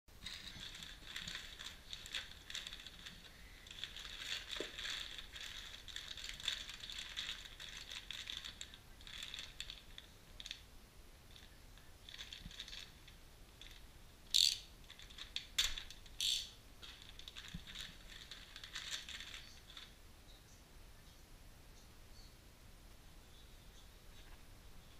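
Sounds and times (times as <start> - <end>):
sharp plastic crackles: 0.1 - 10.7, 11.3 - 20.0
plastic bags rustling: 0.2 - 10.7, 11.3 - 13.9, 14.7 - 16.2, 16.8 - 20.0.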